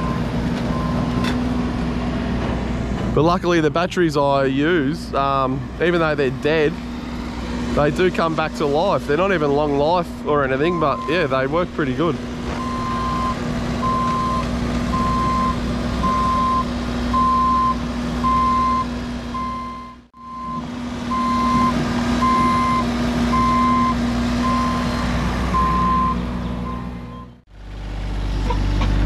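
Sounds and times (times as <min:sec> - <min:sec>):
reversing alarm beeping: 0:00.0 - 0:01.1, 0:12.6 - 0:27.4
diesel engine running: 0:00.0 - 0:29.0.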